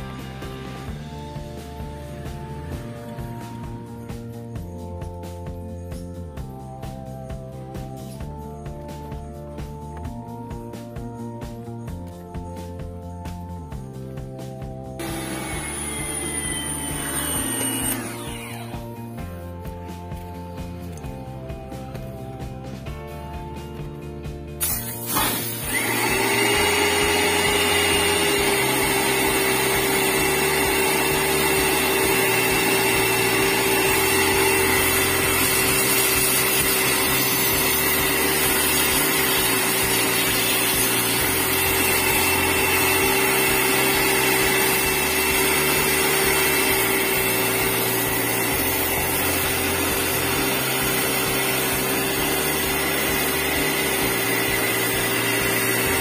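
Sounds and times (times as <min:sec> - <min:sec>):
steam cleaner motor hum: 0:15.0 - 0:19.0, 0:24.6 - 0:56.0.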